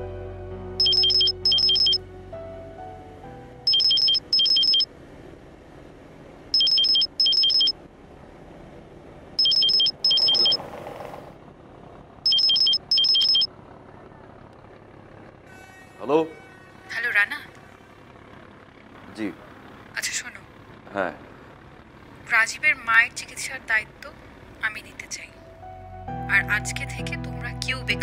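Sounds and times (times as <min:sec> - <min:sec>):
phone ringtone trilling: 0:00.8 - 0:02.0, 0:03.7 - 0:04.9, 0:06.6 - 0:07.7, 0:09.4 - 0:10.6, 0:12.3 - 0:13.5.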